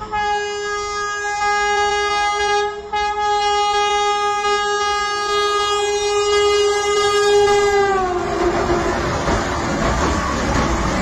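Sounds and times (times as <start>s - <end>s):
train horn blasts: 0.0s - 8.3s.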